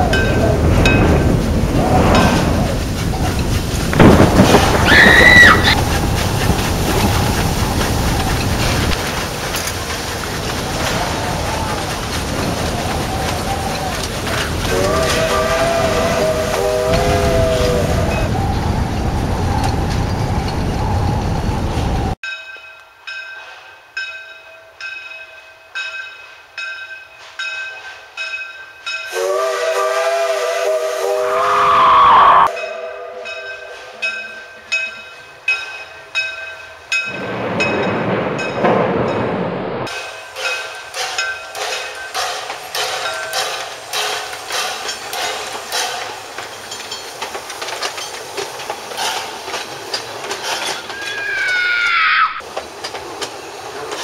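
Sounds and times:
train bell ringing: 0.0s - 1.4s, 22.2s - 29.5s, 32.4s - 39.2s, 39.9s - 48.5s
steam train rumbling: 0.0s - 54.0s
steam whistle chord: 14.7s - 18.4s, 29.1s - 34.3s.

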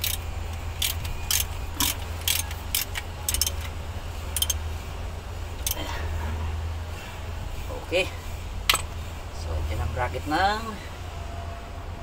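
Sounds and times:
wrench clicking on bolts: 0.0s - 4.6s, 5.6s - 5.8s
steady low hum: 0.0s - 12.0s.

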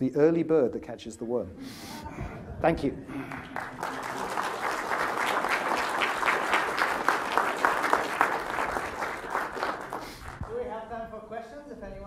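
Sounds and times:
audience applauding: 3.1s - 10.6s.

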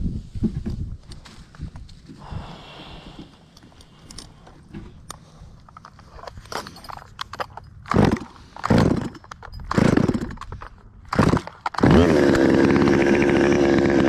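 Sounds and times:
starter cord pulls: 5.1s - 14.0s
chainsaw engine running: 7.9s - 10.4s, 11.1s - 14.0s.

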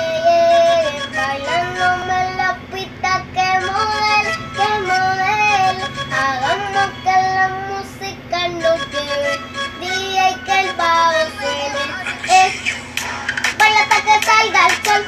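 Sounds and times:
boy singing: 0.0s - 15.0s
backing track with a beat: 12.0s - 15.0s.

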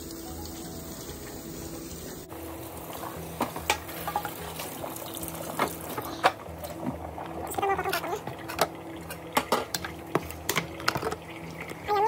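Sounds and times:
tap running into steel sink: 3.4s - 4.7s, 8.2s - 11.8s
knocks and splashes in sink: 5.5s - 7.0s.

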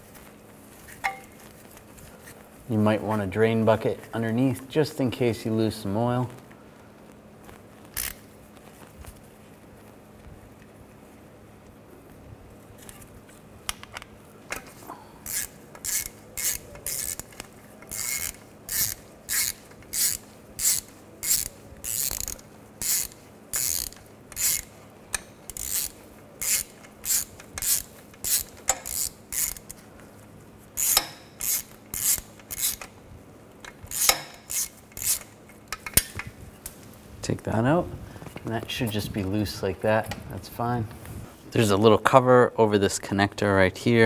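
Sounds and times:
hand ratchet clicking: 7.9s - 8.2s, 15.2s - 29.8s, 30.8s - 32.9s, 33.6s - 36.3s.

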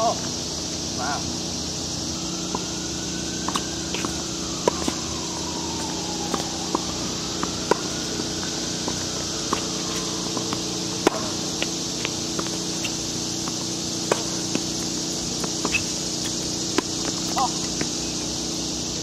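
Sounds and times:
steady high hiss: 0.0s - 19.0s
racket hitting tennis ball: 2.4s - 18.0s
shoe squeak: 3.4s - 5.1s, 7.4s - 18.6s
ball bouncing: 3.4s - 18.0s.

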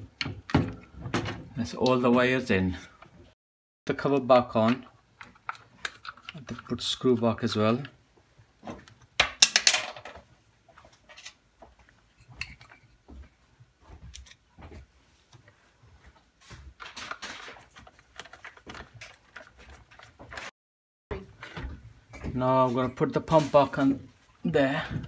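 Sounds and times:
clicks and scrapes of handling: 4.6s - 6.9s, 16.7s - 20.5s.

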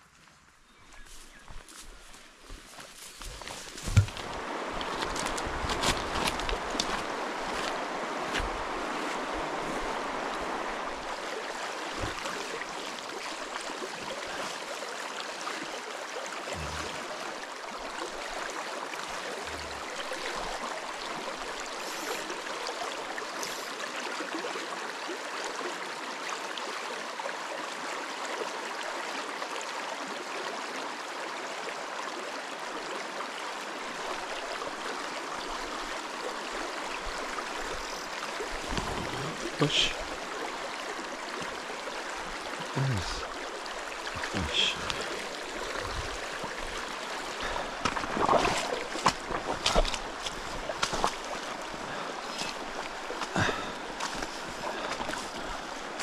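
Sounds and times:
footsteps on river stones: 0.8s - 9.9s, 11.9s - 12.3s, 37.6s - 40.2s, 43.9s - 56.0s
water rushing over stones: 3.2s - 56.0s.

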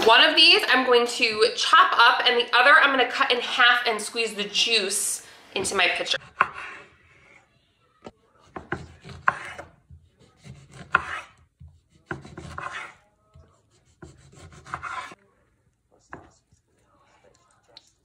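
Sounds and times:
knife slicing through oranges: 8.4s - 15.2s
knife tapping cutting board: 8.6s - 15.1s.

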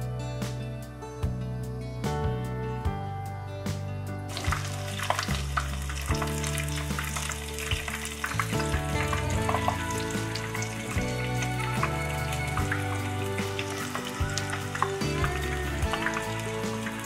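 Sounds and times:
fritters deep-frying in oil: 4.3s - 17.0s.

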